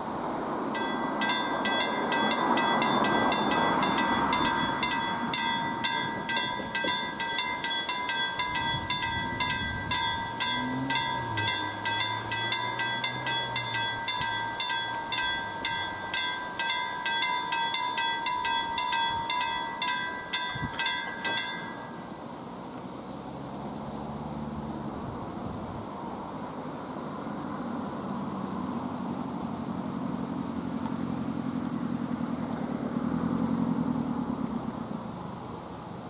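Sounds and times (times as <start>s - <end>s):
car engine passing: 0.0s - 19.8s, 21.2s - 36.0s
level crossing warning bell: 0.6s - 22.4s.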